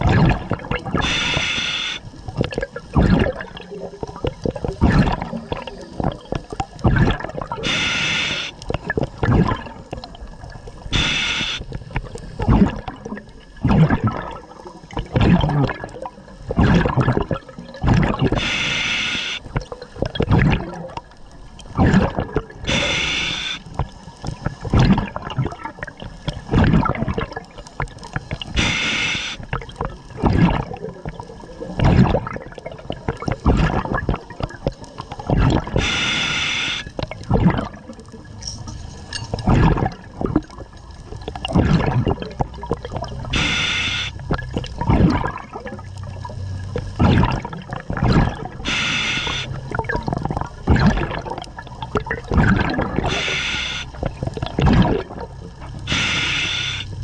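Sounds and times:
bubbling exhales: 0:00.0 - 0:21.0, 0:21.8 - 0:38.4, 0:39.3 - 0:57.0
regulator hissing inhales: 0:01.0 - 0:02.0, 0:07.7 - 0:08.5, 0:11.0 - 0:11.6, 0:18.4 - 0:19.4, 0:22.7 - 0:23.6, 0:28.6 - 0:29.4, 0:35.8 - 0:36.9, 0:43.4 - 0:44.1, 0:48.7 - 0:49.5, 0:53.1 - 0:53.9, 0:55.9 - 0:56.9.

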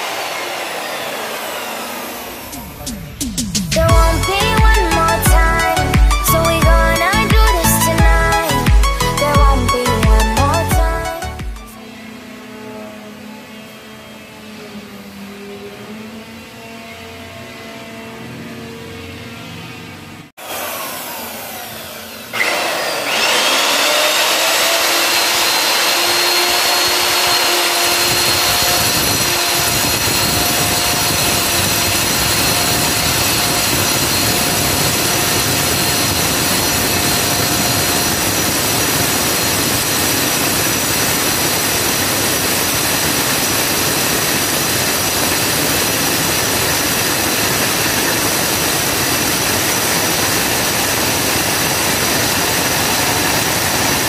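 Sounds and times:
core drill motor whine: 0:00.0 - 0:19.8, 0:20.4 - 0:54.0
drill bit grinding into tile: 0:22.3 - 0:54.0.

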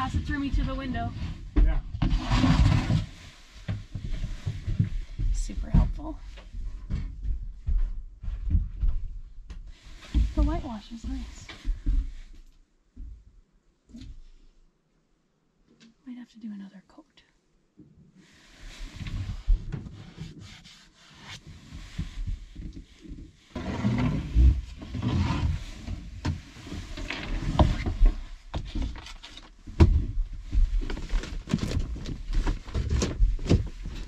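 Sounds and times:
board scraping against wood: 0:02.0 - 0:05.0, 0:18.7 - 0:29.5.

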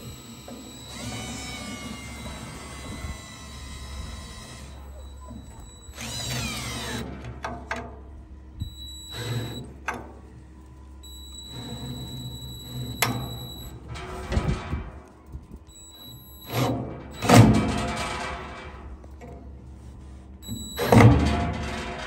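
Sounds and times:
cordless drill whining: 0:00.0 - 0:07.3, 0:08.6 - 0:09.8, 0:11.0 - 0:13.8, 0:15.7 - 0:17.5.

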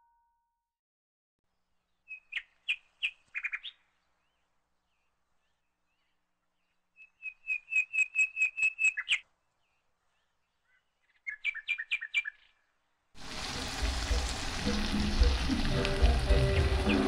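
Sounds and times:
bird-like chirps: 0:01.9 - 0:04.4, 0:06.0 - 0:12.7
background music: 0:13.2 - 0:17.0
steady hiss: 0:13.2 - 0:17.0.

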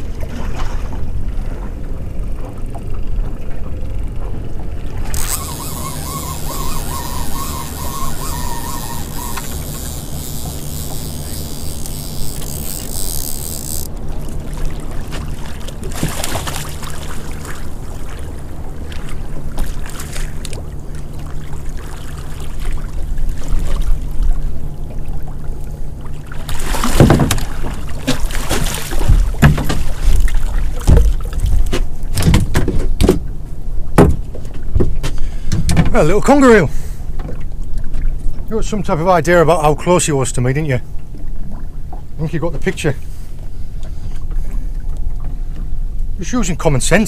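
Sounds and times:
knocks and thumps on boat: 0:00.0 - 0:11.5, 0:14.4 - 0:20.7, 0:26.4 - 0:36.4, 0:37.1 - 0:38.5
boat engine running: 0:00.0 - 0:32.2.

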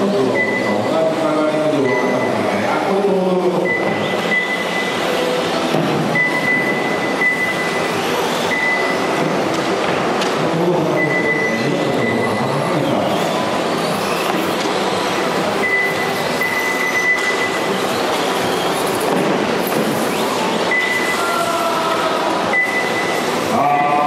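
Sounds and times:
thin high whine: 0:10.4 - 0:24.0.

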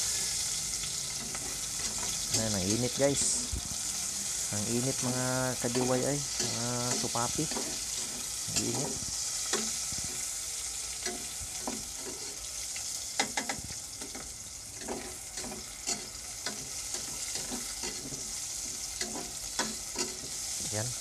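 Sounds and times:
food sizzling in pot: 0:00.0 - 0:21.0
metal spatula scraping pot: 0:00.3 - 0:20.6
spatula clinking against pot: 0:14.8 - 0:20.4.

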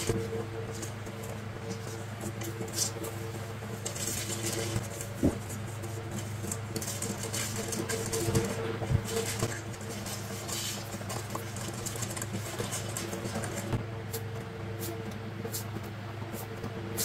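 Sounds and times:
steady low hum: 0:00.0 - 0:17.0
paper sheets rustling: 0:03.8 - 0:13.7.

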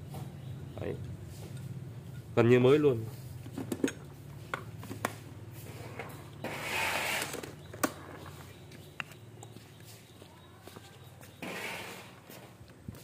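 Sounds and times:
scraping rustle: 0:11.4 - 0:12.6.

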